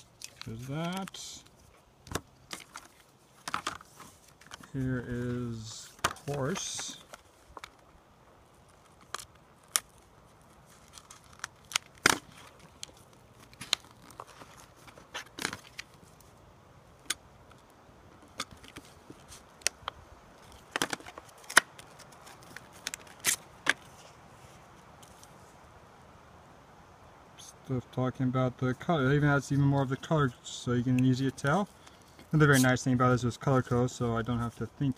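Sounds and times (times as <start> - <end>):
plastic packaging crackling: 0.0 - 4.8, 8.5 - 16.3.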